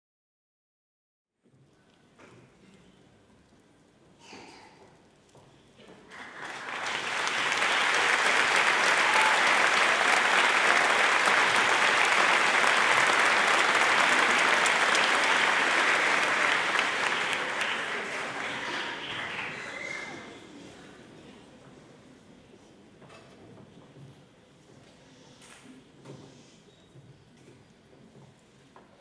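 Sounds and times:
audience applauding: 6.0 - 20.3.

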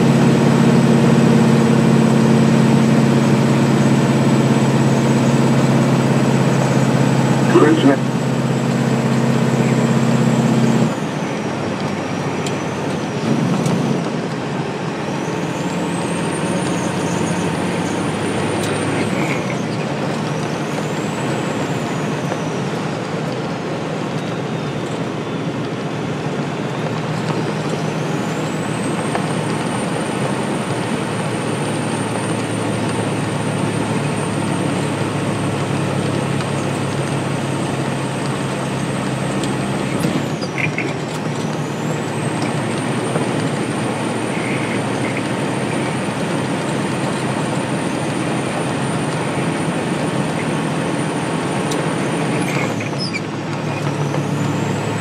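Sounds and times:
high whine: 0.0 - 11.0
truck engine and road noise: 0.0 - 55.0.

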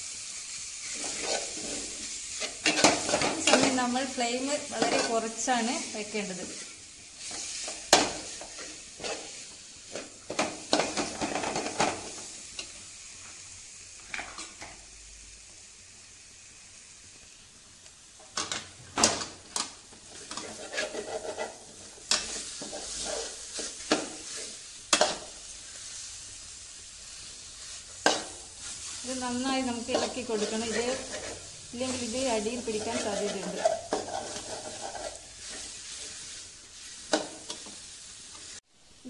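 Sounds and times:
frying sizzle: 0.0 - 39.0
metal spoon scraping a pan: 0.8 - 4.0, 4.6 - 5.4, 6.4 - 11.8, 20.1 - 25.3, 28.0 - 37.7.

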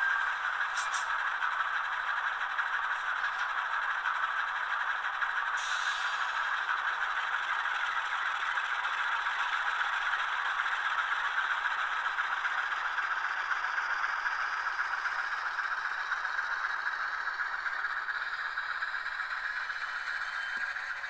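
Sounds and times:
clattery diesel engine sound: 0.0 - 21.0
model train rattle: 0.0 - 21.0.

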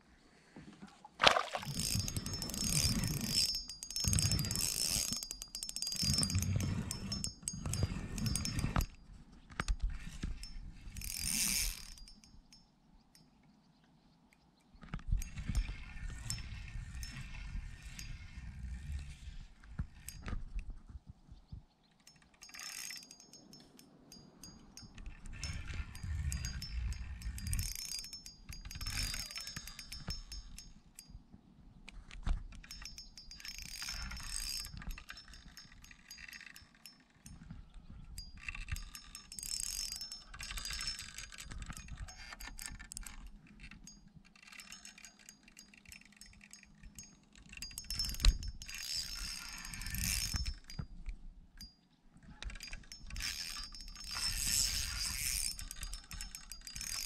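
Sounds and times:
fishing reel clicking and whirring: 1.6 - 9.0, 9.6 - 12.3, 15.2 - 19.4, 22.1 - 31.1, 32.5 - 37.4, 38.2 - 50.9, 52.4 - 57.0.

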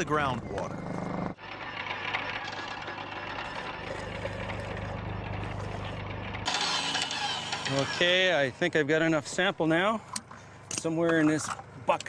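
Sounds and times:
motor-driven pump running: 0.3 - 8.4.

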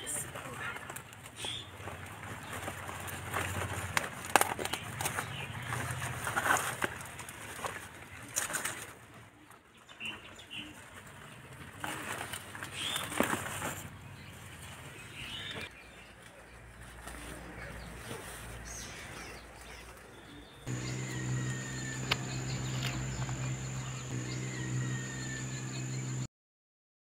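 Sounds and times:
birds chirping: 1.4 - 1.8, 4.6 - 6.0, 12.6 - 16.7, 17.4 - 26.3
low hum with high whine: 20.7 - 26.3.

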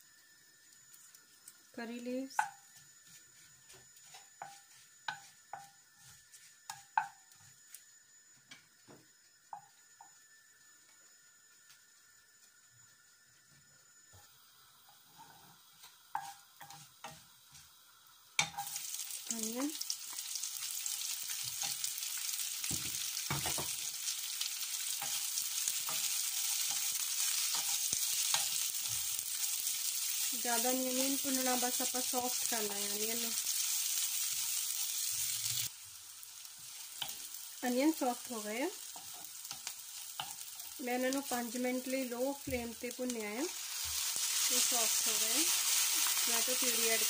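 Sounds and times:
onions sizzling in hot oil: 0.0 - 47.0
wooden spoon stirring in a wok: 2.2 - 7.5, 15.1 - 17.8, 19.5 - 35.7, 36.5 - 47.0
spoon knocking against pan: 2.4 - 2.7, 6.7 - 7.2
wooden spoon knocking and scraping pan: 2.4 - 7.2, 16.1 - 17.6, 22.6 - 23.9.

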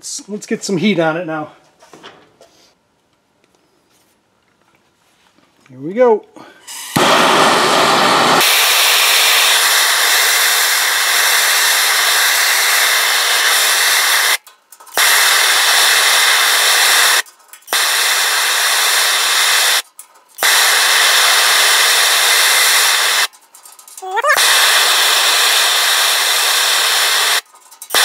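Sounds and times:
gas torch flame hissing: 6.6 - 23.3, 24.2 - 28.0.

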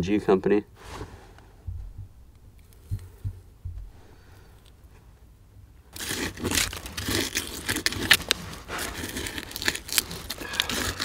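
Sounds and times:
hand tool scraping through gravel: 6.0 - 11.0.

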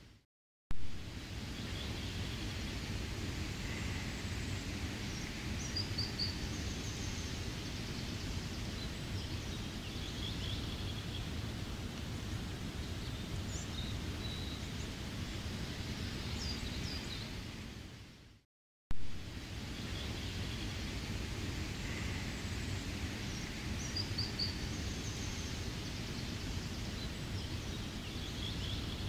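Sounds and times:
steady rain: 0.8 - 18.2, 19.0 - 29.0.

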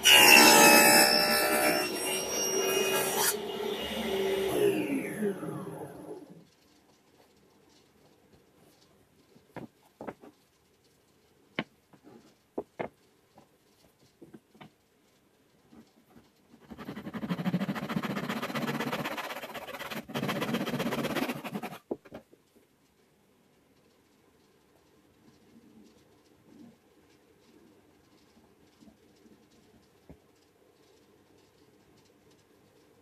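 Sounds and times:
handsaw cutting wood: 0.0 - 6.1, 16.6 - 21.8.

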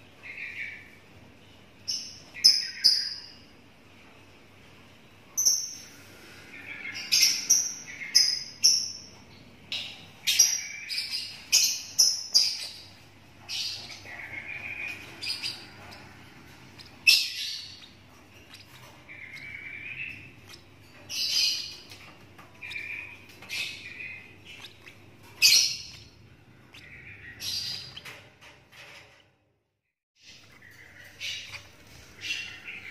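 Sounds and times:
bird chick chirping: 5.4 - 28.4, 30.2 - 32.9.

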